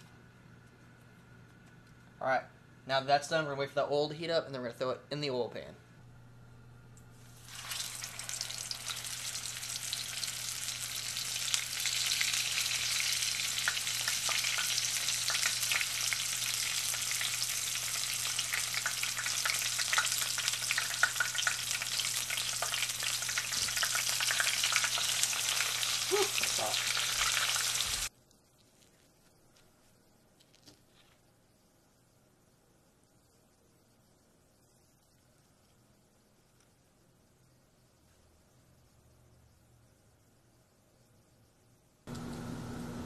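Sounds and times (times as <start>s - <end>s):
fish frying in hot oil: 7.3s - 28.1s.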